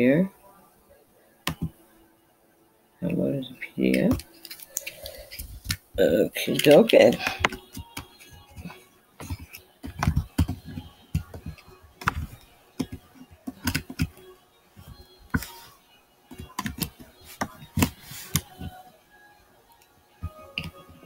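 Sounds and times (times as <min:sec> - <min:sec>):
keyboard typing: 0:03.9 - 0:05.9, 0:06.5 - 0:18.8, 0:19.7 - 0:21.0.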